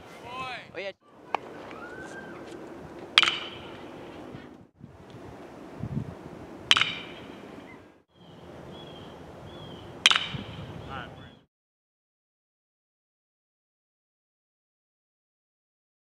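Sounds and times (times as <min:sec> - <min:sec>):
metal bat striking ball: 0:03.1 - 0:03.9, 0:06.7 - 0:07.4, 0:10.0 - 0:10.7.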